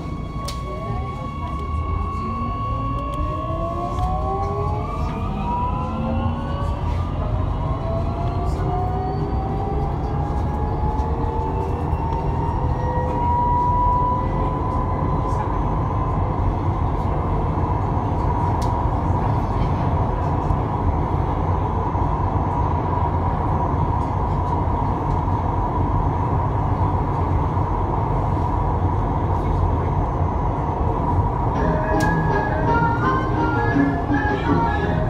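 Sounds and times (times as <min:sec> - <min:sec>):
wheels rumbling on rail: 0:00.0 - 0:35.0
steady high tone: 0:31.5 - 0:35.0.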